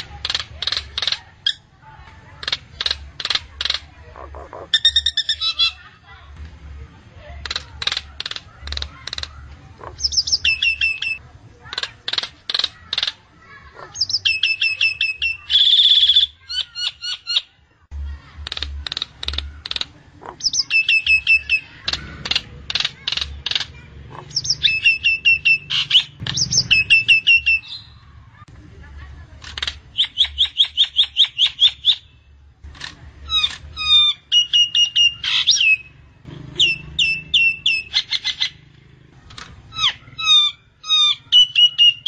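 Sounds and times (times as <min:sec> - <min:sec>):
myna calling: 0:00.0 - 0:06.0, 0:07.2 - 0:17.4, 0:18.0 - 0:28.4, 0:32.8 - 0:42.0
harsh grating bird call: 0:02.3 - 0:06.0, 0:07.4 - 0:17.5, 0:18.4 - 0:28.4, 0:29.5 - 0:42.0.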